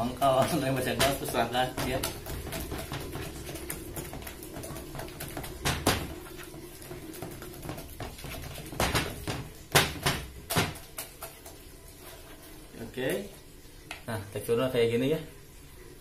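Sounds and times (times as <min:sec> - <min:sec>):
utensil knocking and scraping bowl: 0:00.4 - 0:12.2.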